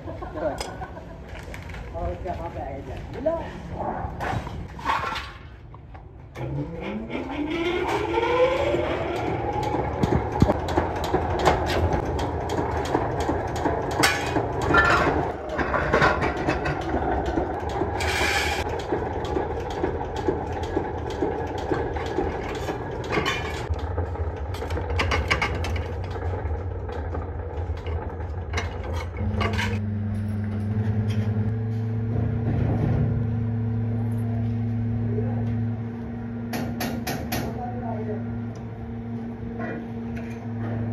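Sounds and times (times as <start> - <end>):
machine low hum: 6.1 - 40.9
sharp metal clanks and knocks: 10.0 - 23.8, 36.5 - 37.6.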